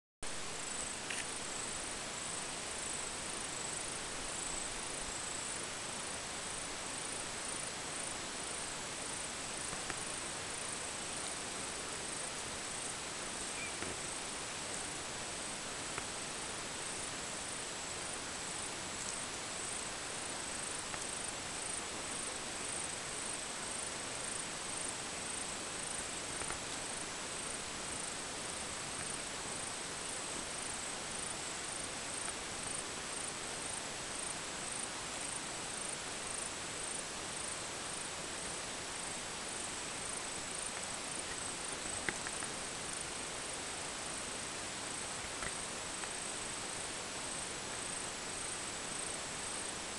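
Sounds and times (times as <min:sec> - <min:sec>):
insect chirping: 0:00.2 - 0:49.9
outdoor hiss: 0:00.2 - 0:49.9
faint ticks: 0:00.8 - 0:01.7, 0:09.2 - 0:10.2, 0:15.8 - 0:16.2, 0:18.9 - 0:19.8, 0:20.6 - 0:22.2, 0:25.9 - 0:27.6, 0:40.0 - 0:43.1, 0:45.0 - 0:46.7.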